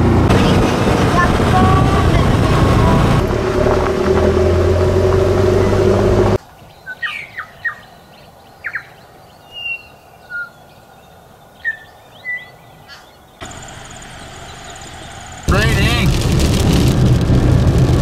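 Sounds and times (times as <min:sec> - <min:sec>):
quad bike engine running: 0:00.0 - 0:06.4, 0:13.4 - 0:18.0
birds chirping and calling: 0:06.6 - 0:15.4.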